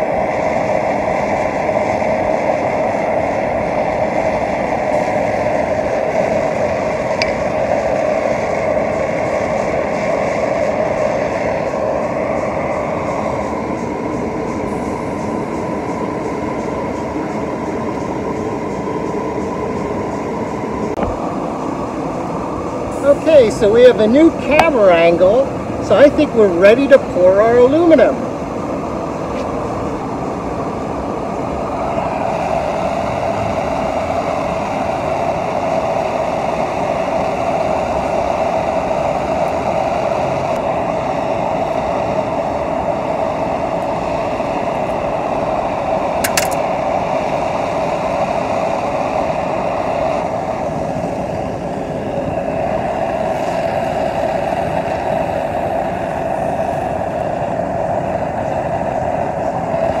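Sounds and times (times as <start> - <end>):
furnace blower rushing: 29.3 - 58.0.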